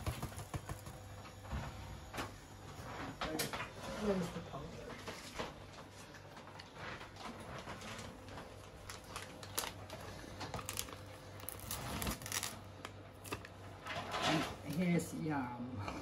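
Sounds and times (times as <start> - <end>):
paper sachet crinkling: 8.6 - 13.5.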